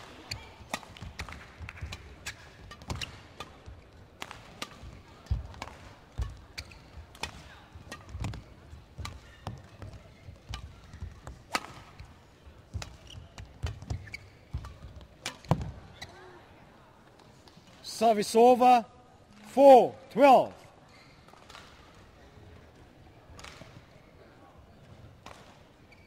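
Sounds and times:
rackets striking shuttlecock: 0:00.1 - 0:12.1, 0:12.7 - 0:15.7.

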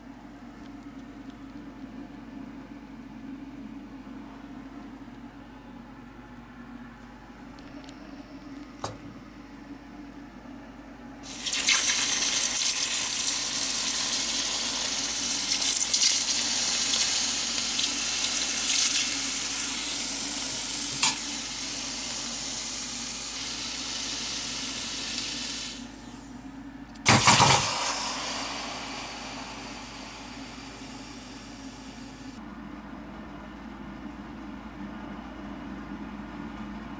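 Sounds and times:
hot metal hissing and sizzling: 0:11.3 - 0:22.7
loud burst of noise: 0:27.1 - 0:31.7.

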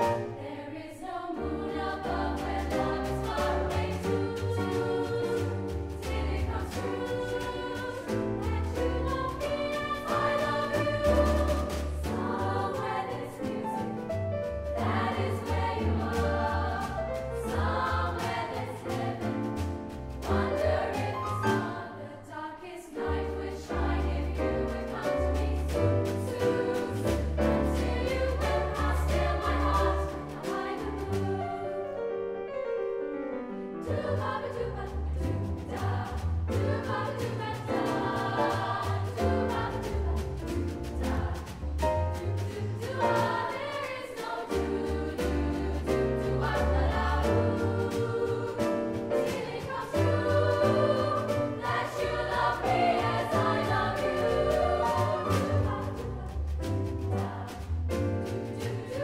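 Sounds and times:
choir singing in parts: 0:00.0 - 0:32.0, 0:33.8 - 0:59.0
double bass low notes: 0:38.9 - 0:42.8, 0:54.3 - 0:58.5.

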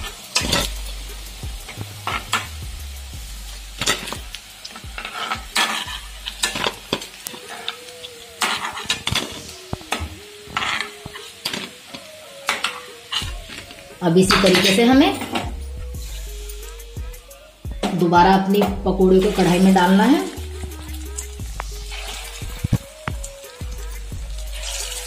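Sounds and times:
fritters sizzling in hot oil: 0:00.0 - 0:17.8, 0:18.8 - 0:25.0
ladle scraping a pan: 0:05.0 - 0:07.8, 0:08.4 - 0:09.5, 0:10.5 - 0:15.5, 0:21.8 - 0:22.8.

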